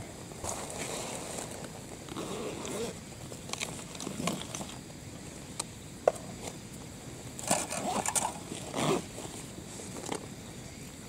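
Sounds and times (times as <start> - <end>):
rustling and clatter of small objects: 7.4 - 10.3.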